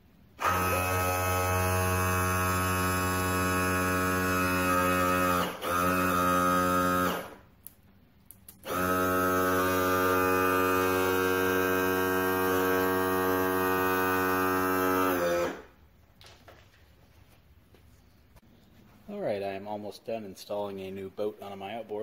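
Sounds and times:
electric pump motor humming: 0.4s - 7.4s, 8.6s - 15.8s.

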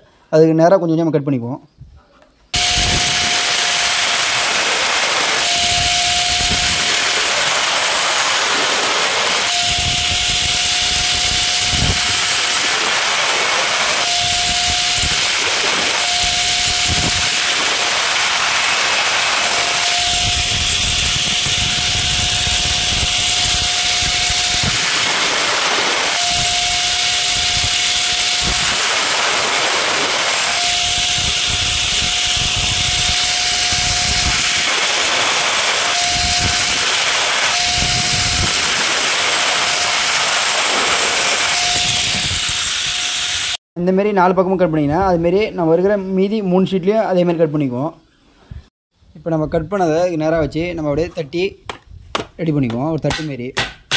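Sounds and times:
angle grinder cutting sheet metal: 2.6s - 43.6s.

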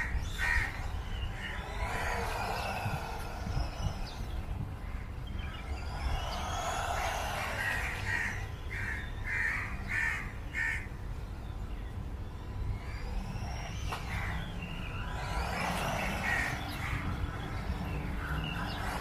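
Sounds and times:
small electric motor whining: 0.0s - 8.6s, 11.2s - 19.0s
wind rumble on microphone: 0.0s - 19.0s
crow cawing: 7.0s - 10.9s.

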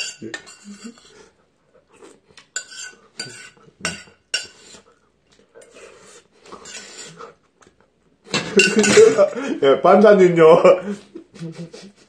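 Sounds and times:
chopsticks clinking on metal bowl: 0.0s - 1.1s, 8.3s - 9.2s.

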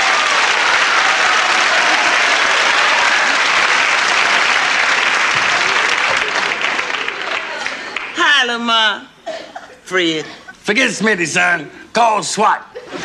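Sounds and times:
audience whooping: 0.0s - 8.0s
audience applauding: 0.0s - 8.3s.

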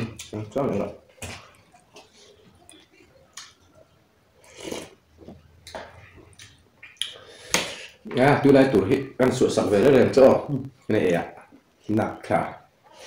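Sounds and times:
chewing and mouth smacks: 1.1s - 7.7s.

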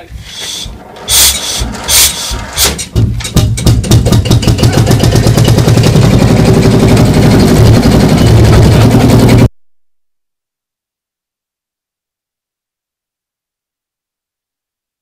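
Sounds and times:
tractor diesel engine chugging: 0.2s - 3.1s, 4.0s - 9.5s.

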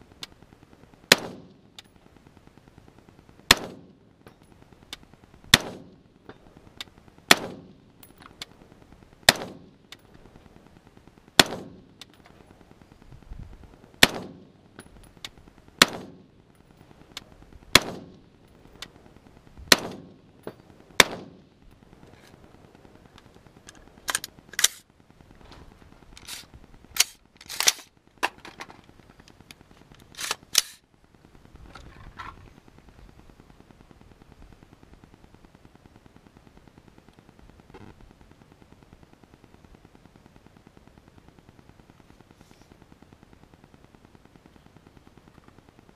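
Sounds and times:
rifle shots with echo: 1.1s - 1.8s, 3.5s - 4.1s, 5.5s - 6.3s, 7.3s - 8.1s, 9.2s - 9.9s, 11.4s - 12.0s, 14.0s - 14.8s, 15.8s - 16.4s, 17.7s - 18.4s, 19.7s - 21.5s
thin sharp gunshot cracks: 3.5s - 4.0s, 5.5s - 6.0s, 7.3s - 7.8s, 9.3s - 9.7s, 11.4s - 12.1s, 14.0s - 14.5s, 15.8s - 16.2s, 17.7s - 18.2s, 19.7s - 20.2s, 21.0s - 21.4s.

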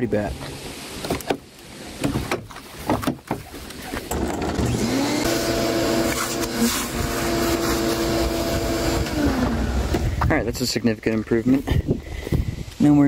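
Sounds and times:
shop vac motor whining: 4.1s - 10.1s.

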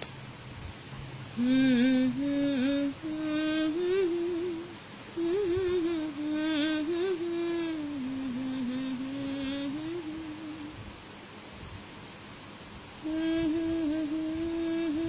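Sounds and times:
woman humming: 1.4s - 10.8s, 13.0s - 15.0s.

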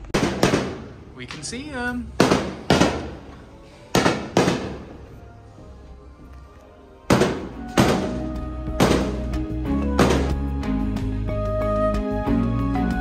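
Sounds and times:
fireworks bangs: 0.0s - 1.4s, 2.1s - 5.2s, 7.1s - 10.5s
music: 0.0s - 13.0s.

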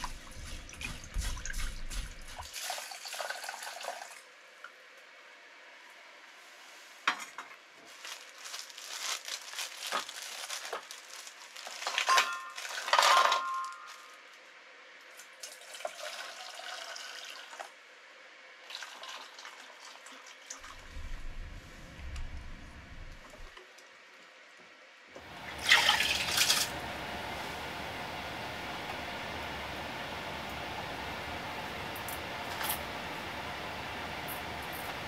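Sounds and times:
water splashing and dripping: 0.0s - 4.2s, 25.3s - 26.8s
low rumble: 20.7s - 23.5s.

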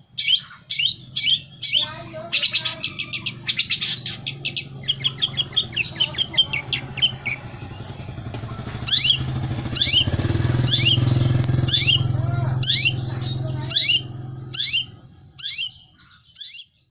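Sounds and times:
bird chattering notes: 0.0s - 16.9s
sharp downward bird calls: 0.0s - 16.9s
low engine hum: 0.8s - 16.0s.

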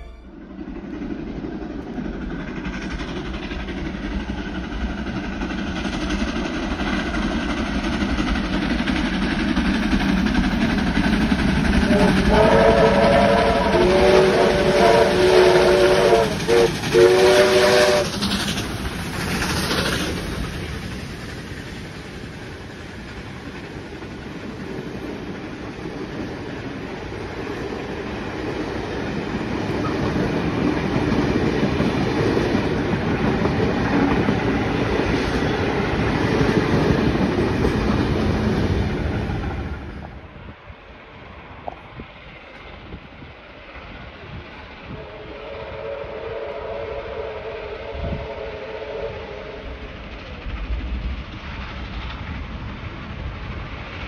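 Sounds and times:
steam train passing: 0.0s - 54.0s
steam whistle blasts: 11.9s - 18.1s, 44.9s - 49.8s.

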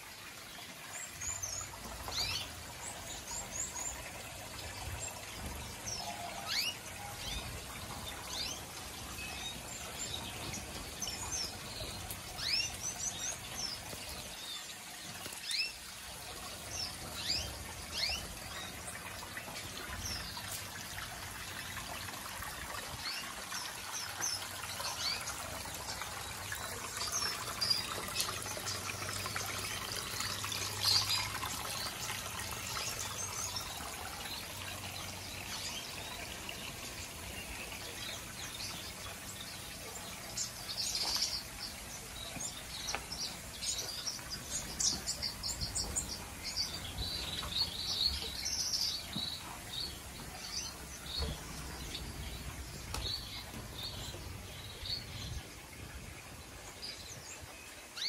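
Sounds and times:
small waterfall trickling: 0.0s - 58.0s.

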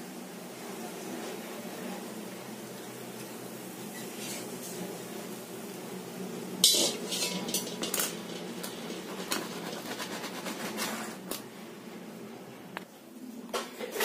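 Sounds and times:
steel pot clanking down: 6.6s - 10.1s.

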